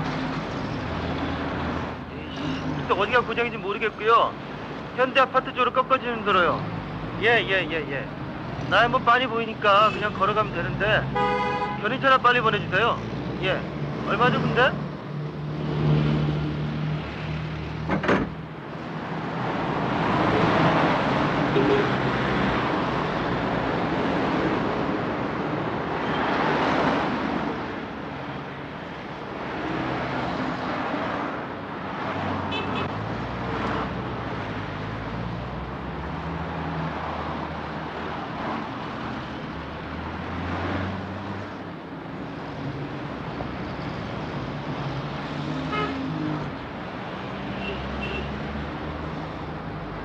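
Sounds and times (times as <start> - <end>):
cars driving past: 0.0 - 50.0.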